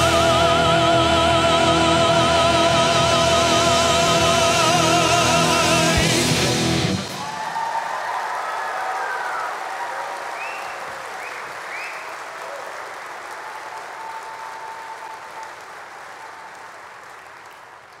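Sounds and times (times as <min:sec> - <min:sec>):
audience applauding: 0:05.7 - 0:18.0.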